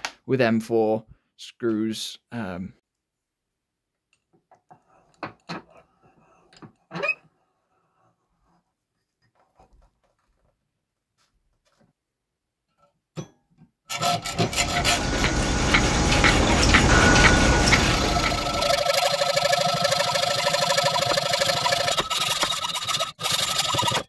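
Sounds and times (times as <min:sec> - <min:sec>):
file rasping metal: 0:13.9 - 0:24.0.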